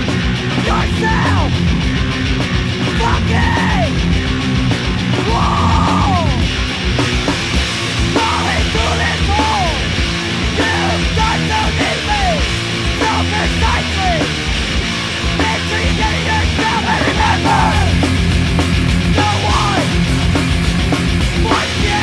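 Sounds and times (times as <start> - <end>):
punk rock music: 0.0 - 22.0
person yelling vocals: 0.6 - 1.6, 2.9 - 4.0, 5.2 - 6.5, 8.1 - 9.9, 10.6 - 12.4, 13.0 - 14.2, 15.4 - 18.0, 19.1 - 19.9, 21.4 - 22.0.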